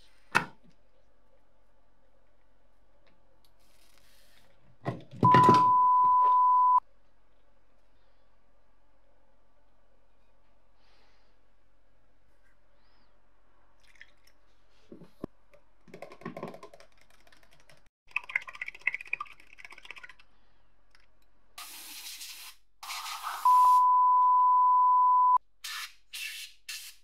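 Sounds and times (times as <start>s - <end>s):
high-pitched beep: 5.2s - 6.8s, 23.5s - 25.4s.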